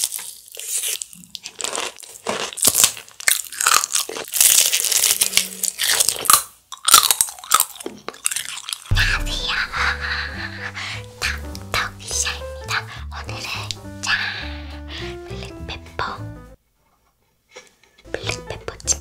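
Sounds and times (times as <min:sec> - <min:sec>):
crunching and chewing fried chicken: 0:00.0 - 0:08.9.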